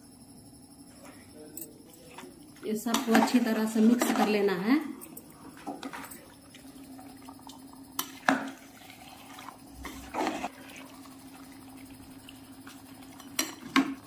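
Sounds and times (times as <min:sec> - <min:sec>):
steady low hum: 0:00.0 - 0:14.0
ladle stirring wet food: 0:01.9 - 0:14.0
ladle scraping and knocking pot: 0:02.9 - 0:04.4, 0:08.0 - 0:10.9.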